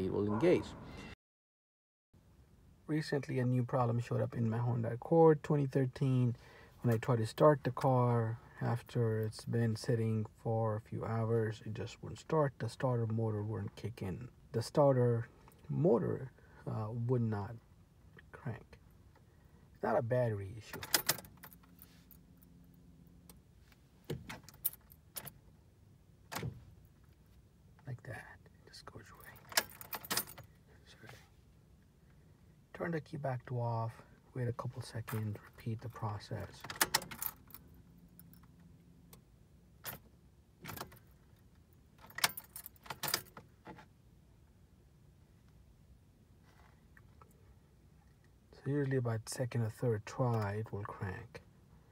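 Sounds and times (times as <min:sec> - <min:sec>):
faint steady hum: 0:02.2 - 0:51.9
car keys jingling: 0:20.8 - 0:22.8, 0:29.1 - 0:30.6, 0:39.8 - 0:43.6.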